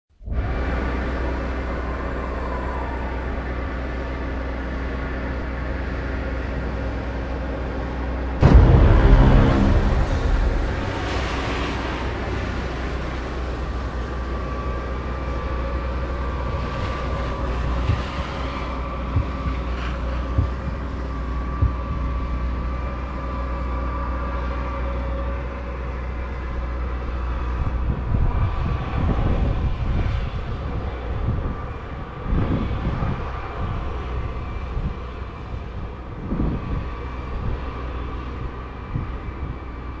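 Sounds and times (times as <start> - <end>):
steady hum: 8.4 - 12.9
wind buffeting microphone: 8.4 - 22.8, 27.6 - 40.0.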